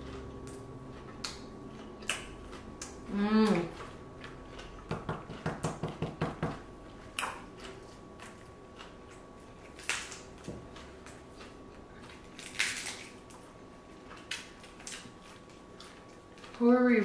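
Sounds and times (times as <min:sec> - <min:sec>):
soft chewing: 0:00.0 - 0:17.0
crisp crunches: 0:07.2 - 0:16.6.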